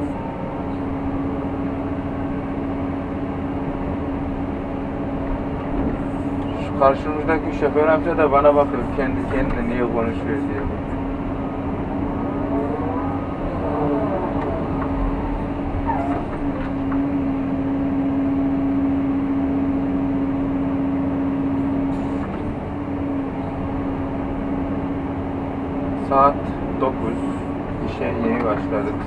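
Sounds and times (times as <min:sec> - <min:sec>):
excavator engine hum: 0:00.0 - 0:29.0
hydraulic whine: 0:10.9 - 0:17.9.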